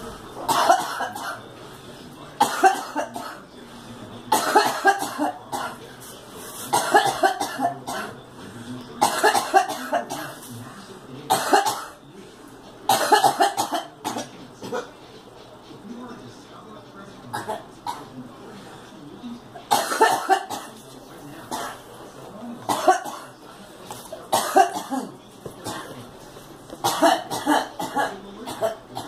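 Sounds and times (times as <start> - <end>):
woman coughing: 0.5 - 1.4, 2.4 - 3.4, 4.3 - 5.8, 6.7 - 8.2, 9.0 - 10.4, 11.3 - 12.0, 12.9 - 14.9, 19.7 - 20.7, 22.7 - 23.3, 24.3 - 25.9, 26.8 - 29.0.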